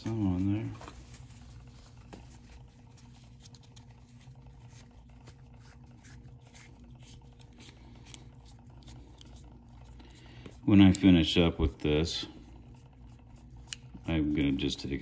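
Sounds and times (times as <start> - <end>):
cloth rubbing on plastic: 0.0 - 9.6
low room hum: 0.0 - 15.0.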